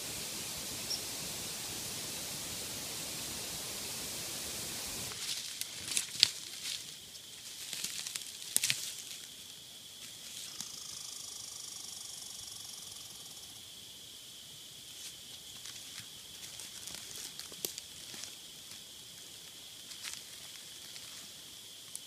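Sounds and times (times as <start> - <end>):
steady faint hiss: 0.0 - 22.0
twigs snapping: 5.1 - 6.8, 7.6 - 9.2
footsteps on leaf litter: 5.1 - 9.3.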